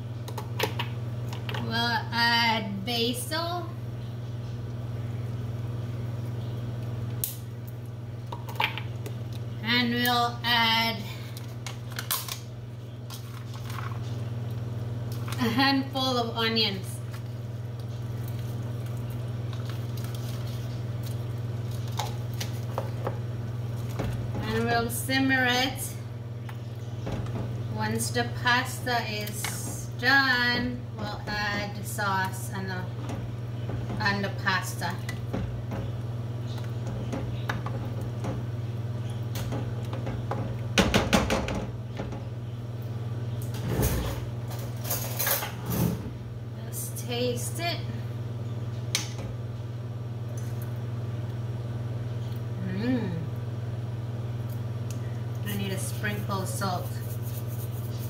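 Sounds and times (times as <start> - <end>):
steady low hum: 0.0 - 58.0
water boiling and bubbling: 3.7 - 43.3.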